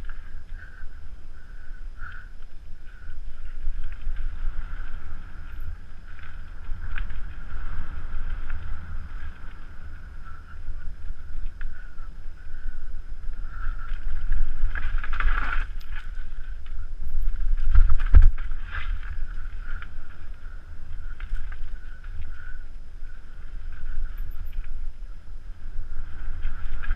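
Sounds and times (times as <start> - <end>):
bike rattling: 0.0 - 26.9
wind buffeting microphone: 0.0 - 26.9.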